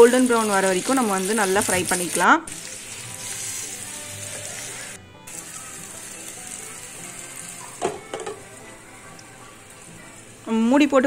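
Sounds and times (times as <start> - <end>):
food sizzling in oil: 0.0 - 11.0
glass lid knocking on pan: 7.8 - 8.4.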